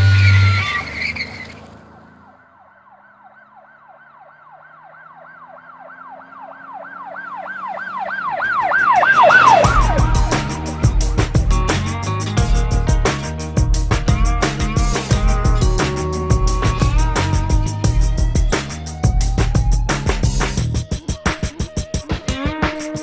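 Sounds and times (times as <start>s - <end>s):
siren wailing: 0.0s - 11.0s
music with drums: 9.6s - 23.0s.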